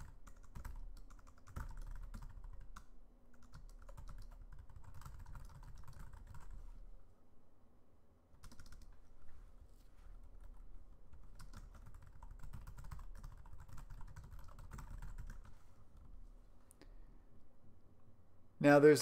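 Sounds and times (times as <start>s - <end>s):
computer keyboard typing: 0.0s - 6.8s, 8.4s - 9.0s, 10.2s - 16.1s.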